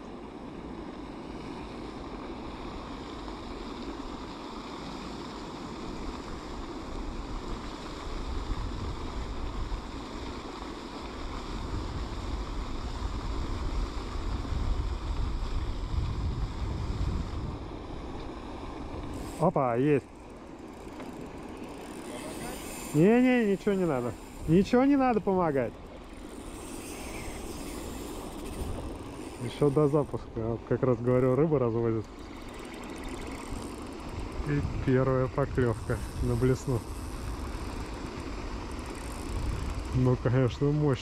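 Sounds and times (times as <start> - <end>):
rushing water: 0.0 - 41.0
wind buffeting microphone: 11.5 - 19.6, 20.7 - 41.0.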